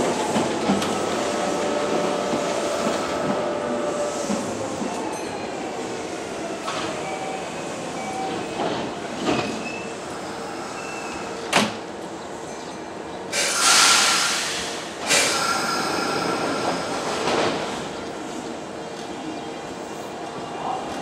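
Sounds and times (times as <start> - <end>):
electric train rumble: 0.0 - 21.0
loud hissing bursts: 13.3 - 17.2.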